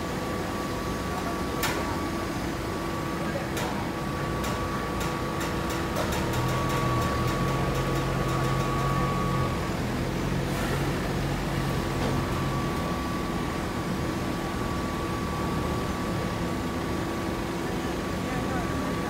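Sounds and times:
machinery hum: 0:00.0 - 0:19.0
forklift engine running: 0:04.0 - 0:19.0.

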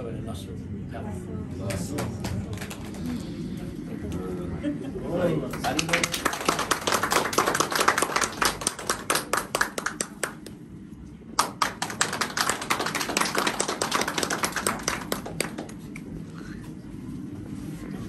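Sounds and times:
people clapping: 0:01.6 - 0:03.3, 0:05.5 - 0:16.6.

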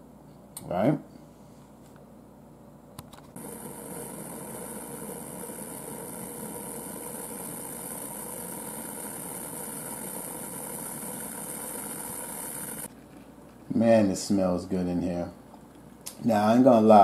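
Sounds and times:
pressure cooker valve hissing: 0:03.4 - 0:12.9.

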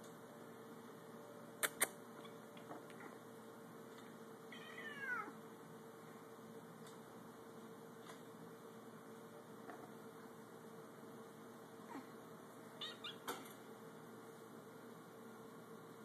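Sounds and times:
cat meowing: 0:04.5 - 0:05.4, 0:12.8 - 0:13.3.

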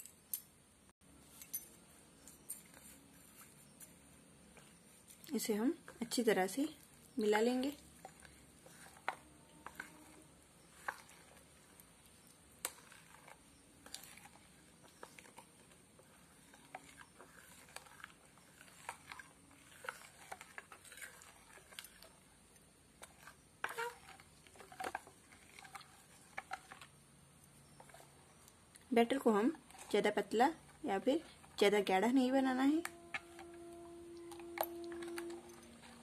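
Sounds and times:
spoon clinking and scraping bowl: 0:05.9 - 0:22.2, 0:23.0 - 0:26.9, 0:32.7 - 0:36.0.

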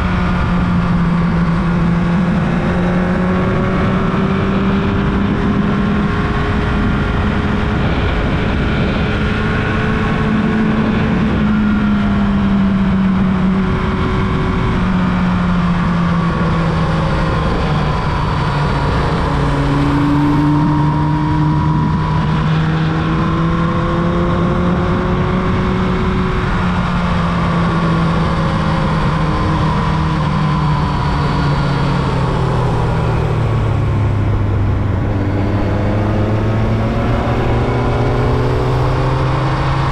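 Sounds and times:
steady low rush: 0:27.6 - 0:39.9.

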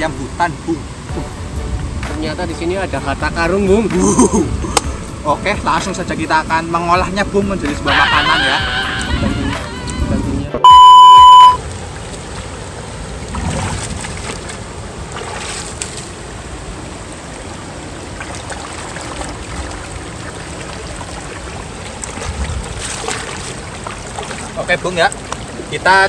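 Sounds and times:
electronic beep tone: 0:10.6 - 0:11.6
river rushing over rocks: 0:11.6 - 0:26.0.

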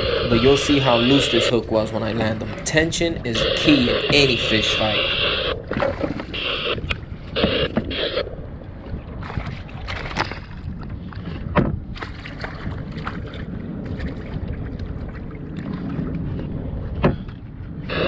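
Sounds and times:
wind buffeting microphone: 0:00.0 - 0:18.0
water sloshing against kayak hull: 0:03.9 - 0:17.8.

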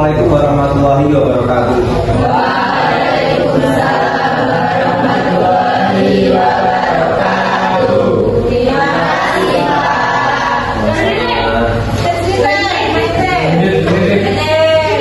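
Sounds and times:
students chanting in unison: 0:02.2 - 0:11.7.

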